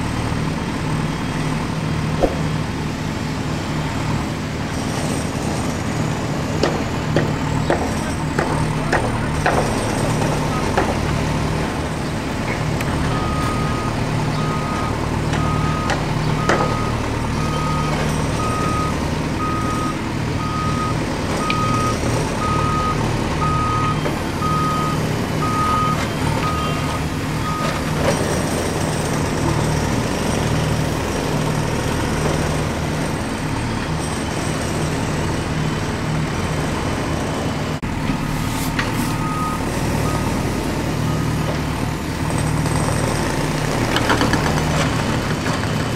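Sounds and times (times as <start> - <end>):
engine rumble: 0.0 - 45.9
vehicle reversing alarm beeping: 7.7 - 12.1, 12.9 - 28.2, 37.9 - 41.8.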